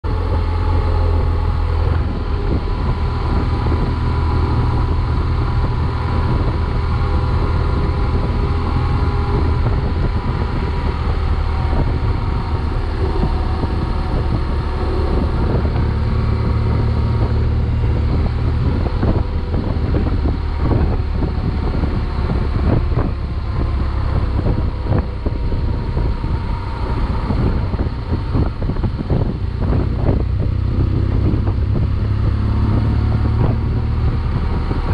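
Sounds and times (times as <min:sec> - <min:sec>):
motorcycle engine cruising: 0:00.0 - 0:34.9
wind rushing over microphone: 0:00.0 - 0:34.9.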